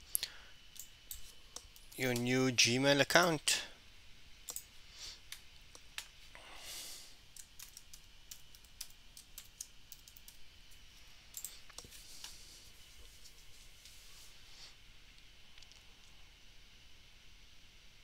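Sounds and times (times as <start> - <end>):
keyboard typing: 4.5 - 4.7, 7.3 - 10.4, 11.3 - 11.9.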